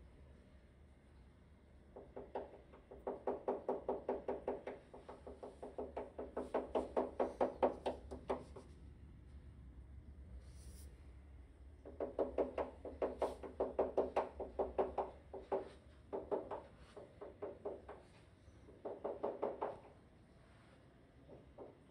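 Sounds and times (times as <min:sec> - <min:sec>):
low steady hum: 0:00.0 - 0:02.1, 0:07.0 - 0:18.9.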